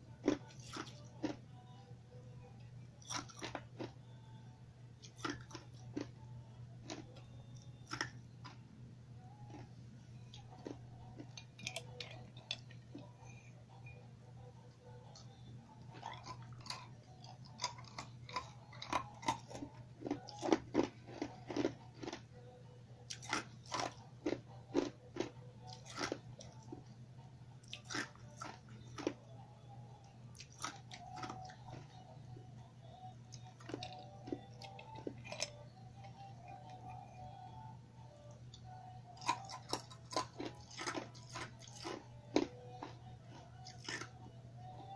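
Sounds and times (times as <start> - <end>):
faint low hum: 0.0 - 44.9
ice crunching between teeth: 0.2 - 1.4, 3.0 - 3.9, 5.0 - 6.1, 17.5 - 22.2, 23.1 - 26.7, 39.2 - 43.0, 43.6 - 44.2.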